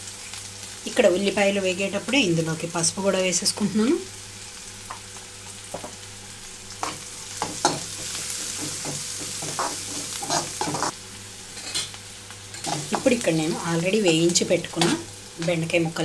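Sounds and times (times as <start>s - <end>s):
onions and chillies sizzling in oil: 0.0s - 16.0s
metal spatula scraping pan: 8.5s - 10.9s.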